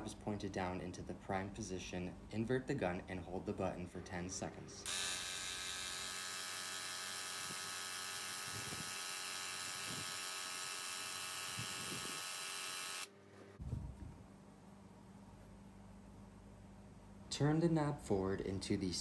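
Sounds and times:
paint sprayer pump running: 0:04.8 - 0:13.1.

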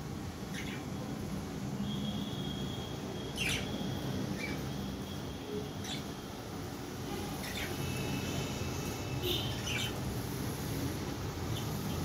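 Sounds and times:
cockatiels chirping: 0:00.5 - 0:00.9, 0:09.5 - 0:10.0.

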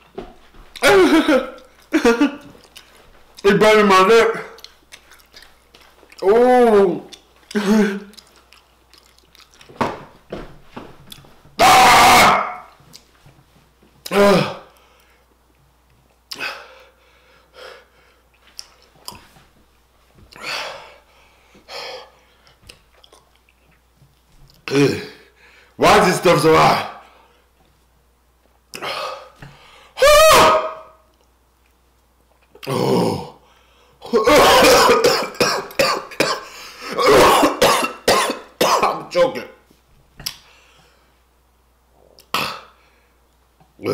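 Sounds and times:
man clearing his throat: 0:00.8 - 0:02.4, 0:07.5 - 0:08.1, 0:34.1 - 0:39.0, 0:42.3 - 0:42.8
man coughing hard: 0:00.8 - 0:02.4, 0:34.1 - 0:39.0
man's pained cry: 0:11.6 - 0:12.7, 0:34.1 - 0:35.0.

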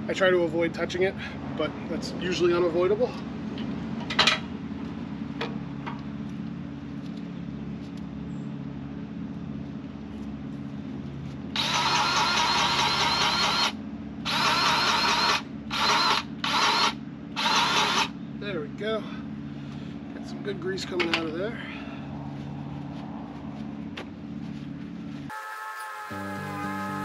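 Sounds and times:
low engine hum: 0:00.0 - 0:25.3
grease gun motor whirring: 0:11.6 - 0:18.2.

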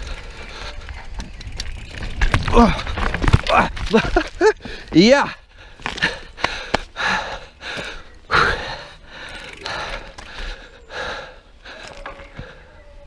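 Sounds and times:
bike clicking and rattling: 0:00.0 - 0:13.0
rider gasping: 0:04.6 - 0:13.0.

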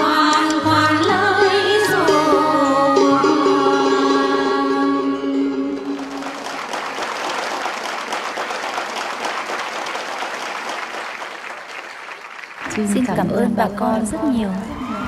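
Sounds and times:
song with held notes: 0:00.0 - 0:06.9
audience applauding: 0:05.8 - 0:13.2.

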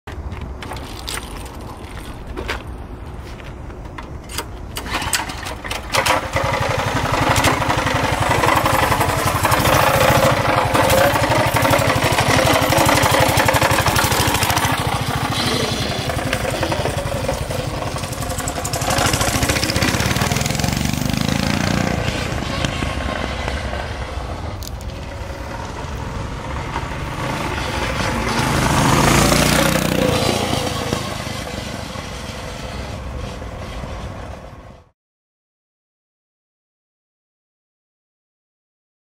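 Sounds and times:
small engine running: 0:04.8 - 0:34.9.

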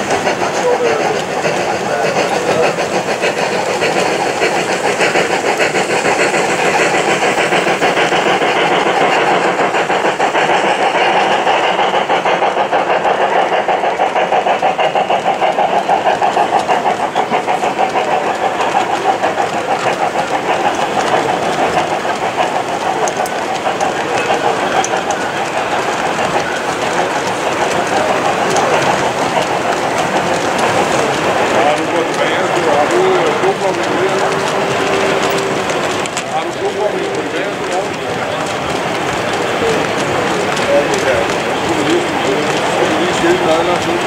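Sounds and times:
model steam locomotive exhaust beat: 0:00.0 - 0:44.0
wagons clattering along track: 0:00.0 - 0:44.0.

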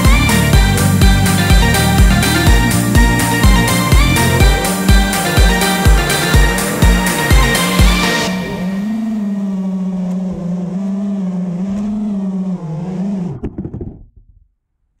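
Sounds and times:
drone motors humming: 0:00.0 - 0:14.0
knocks of drone touching down: 0:13.2 - 0:14.2.

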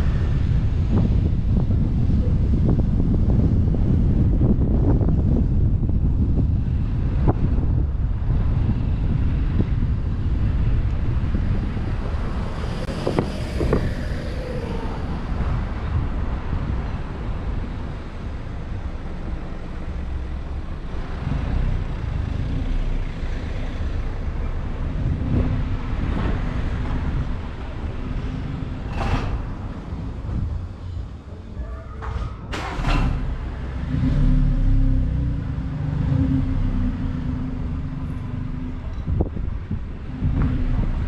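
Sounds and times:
road noise: 0:00.0 - 0:41.0
wind rumbling on microphone: 0:00.0 - 0:41.0.

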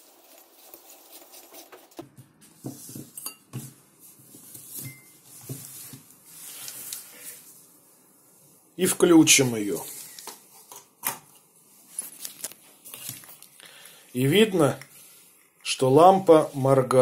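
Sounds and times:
newspaper rustles: 0:00.0 - 0:02.2, 0:04.2 - 0:07.5, 0:11.8 - 0:13.6.

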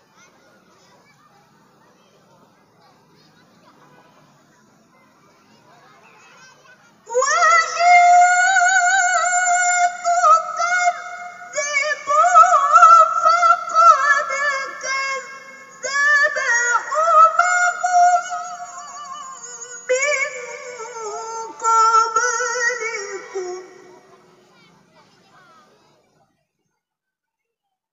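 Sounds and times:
woman reciting melodically: 0:06.9 - 0:25.7.

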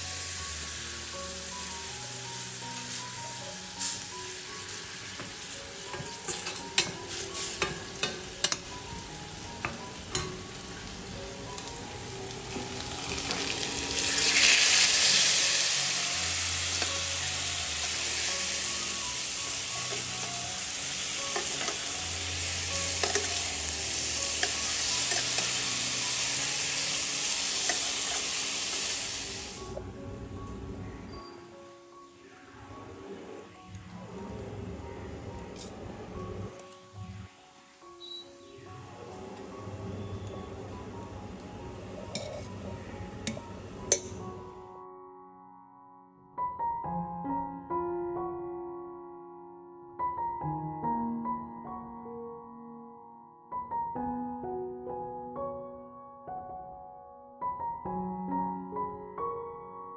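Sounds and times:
food sizzling in a pan: 0:00.0 - 0:29.8
soft background music: 0:00.0 - 0:59.9
spatula scraping a pan: 0:42.1 - 0:42.6.

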